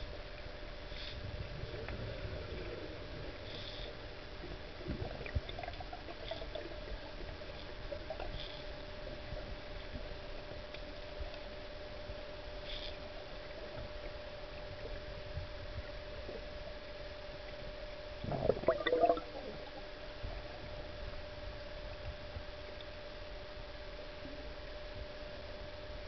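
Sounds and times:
faint underwater hum: 0.0 - 26.0
diver's gear bubbling and gurgling: 18.2 - 19.8.

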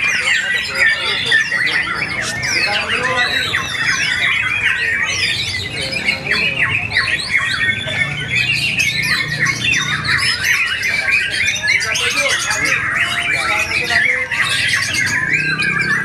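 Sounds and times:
birds singing: 0.0 - 16.0.

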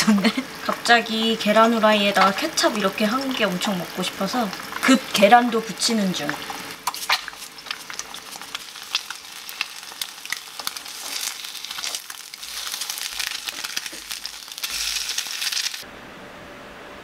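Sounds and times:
eggs sizzling in oil: 0.0 - 15.8
utensil scraping in pan: 6.3 - 15.8.

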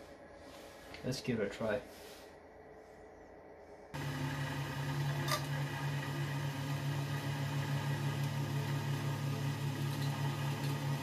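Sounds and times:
lathe machine hum: 4.0 - 11.0.

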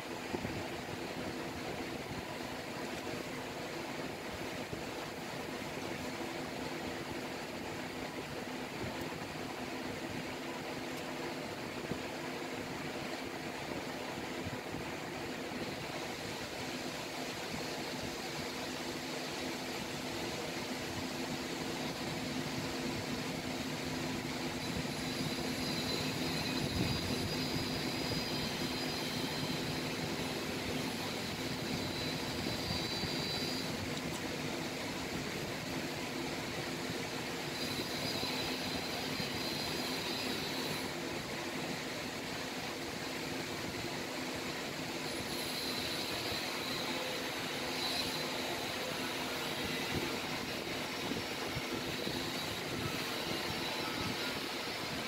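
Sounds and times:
low mechanical hum: 0.0 - 55.0.

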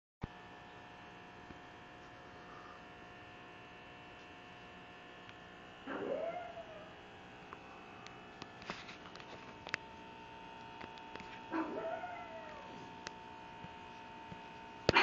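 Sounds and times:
electrical hum: 0.2 - 15.0
dog vocalizing: 5.9 - 6.9, 11.5 - 12.8.

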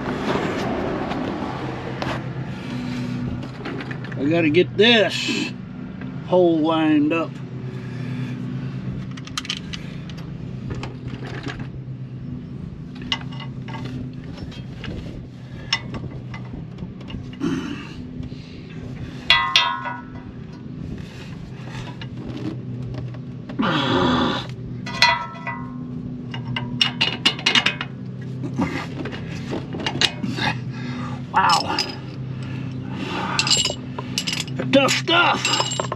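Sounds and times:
lawn mower engine drone: 0.0 - 35.9
wrench clinking on metal: 19.3 - 20.3, 24.8 - 27.9, 31.4 - 32.2, 33.2 - 34.7, 35.3 - 35.9.

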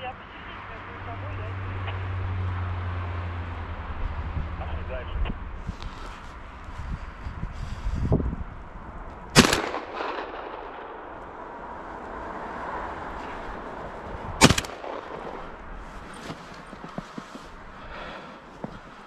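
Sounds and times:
gunshots with echo: 9.3 - 11.2, 14.4 - 15.6.

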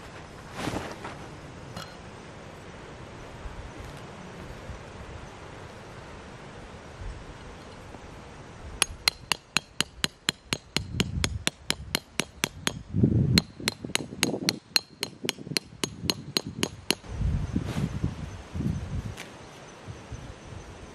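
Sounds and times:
hammer striking tent peg: 8.8 - 17.1.

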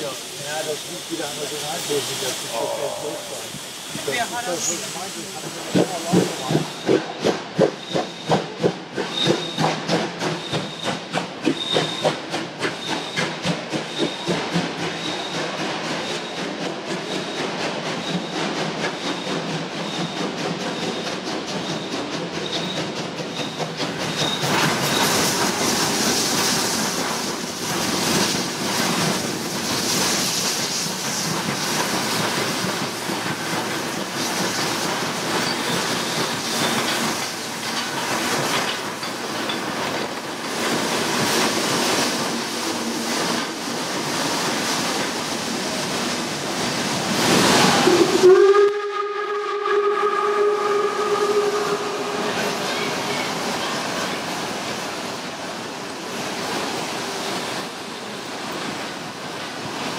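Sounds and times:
steam hissing: 0.0 - 59.9
steam locomotive whistle: 47.6 - 53.2.

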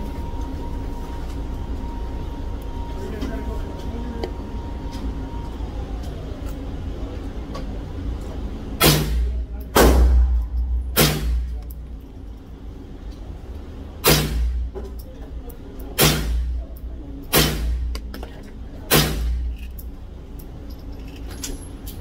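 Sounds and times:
steady low rumble: 0.0 - 22.0
rifle shots with echo: 8.8 - 11.5.

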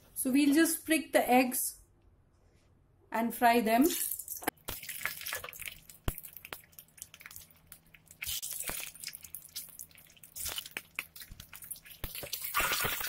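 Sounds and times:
oil popping and sizzling in a pan: 4.5 - 13.0.

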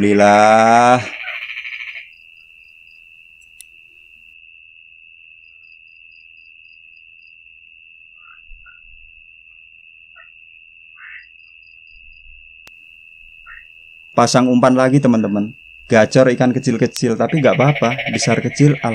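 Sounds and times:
frog calls: 0.0 - 4.0, 8.1 - 12.4, 13.2 - 18.9
high insect trill: 0.0 - 18.9.

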